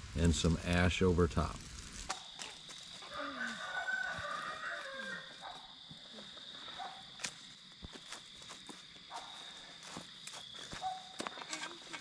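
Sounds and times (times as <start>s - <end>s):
faint rooster crowing: 3.0s - 6.2s.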